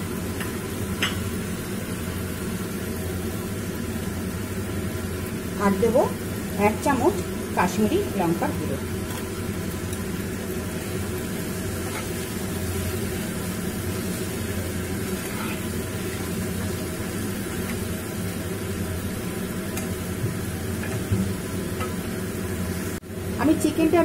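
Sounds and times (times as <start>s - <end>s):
chicken sizzling in frying pan: 0.0s - 24.0s
spatula stirring: 14.0s - 16.4s.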